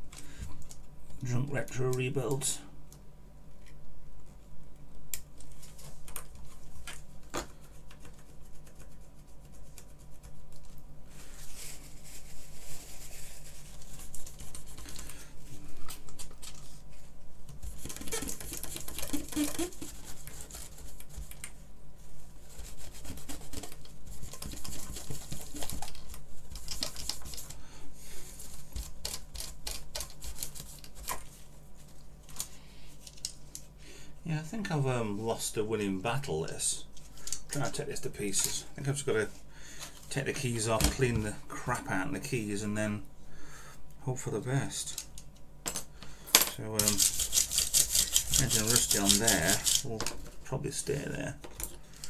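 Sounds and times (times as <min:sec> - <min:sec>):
low electrical hum: 0:00.0 - 0:52.0
hands rubbing on board: 0:07.6 - 0:10.6, 0:17.6 - 0:21.5, 0:22.4 - 0:25.9, 0:46.8 - 0:49.8
tool scraping circuit board: 0:46.8 - 0:49.9.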